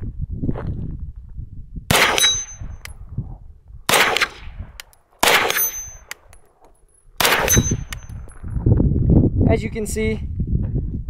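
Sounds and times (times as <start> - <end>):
pistol shots with echo: 1.9 - 2.8, 3.9 - 4.6, 5.2 - 6.2, 7.2 - 8.1.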